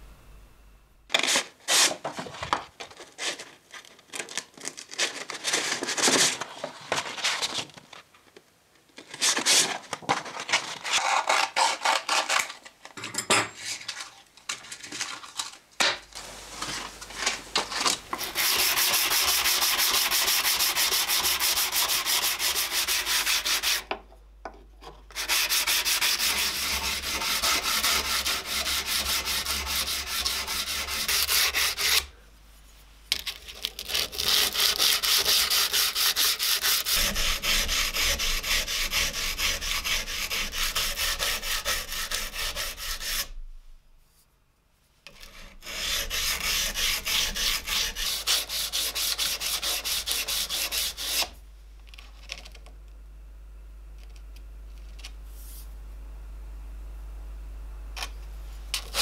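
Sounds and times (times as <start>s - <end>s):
handling paper sheets: 1.1s - 8.1s, 13.7s - 20.2s
sandpaper sanding steel blade: 18.2s - 23.8s, 25.2s - 32.1s, 33.7s - 43.4s, 45.2s - 51.3s.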